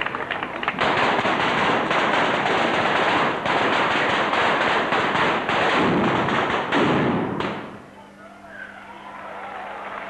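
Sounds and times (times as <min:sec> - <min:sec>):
fireworks crackling: 0:00.0 - 0:07.7.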